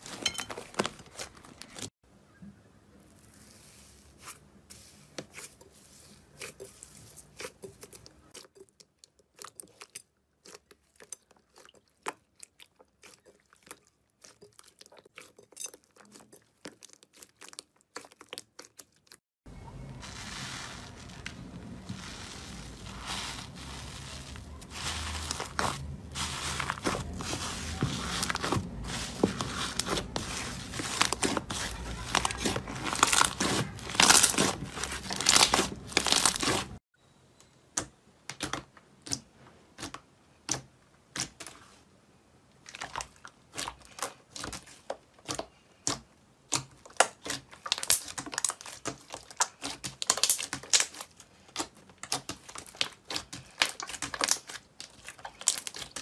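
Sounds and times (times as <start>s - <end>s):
slime bubbles crackling: 20.0s - 36.8s.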